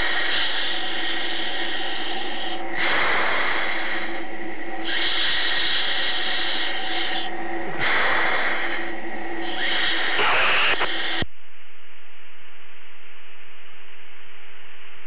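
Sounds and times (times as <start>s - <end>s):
breathing into mask microphone: 0.0s - 11.2s
electrical hum: 0.0s - 15.0s.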